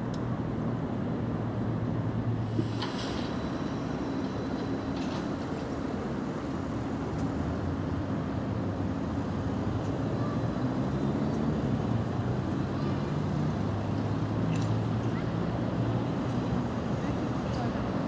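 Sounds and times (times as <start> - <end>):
city traffic rumble: 0.0 - 18.0.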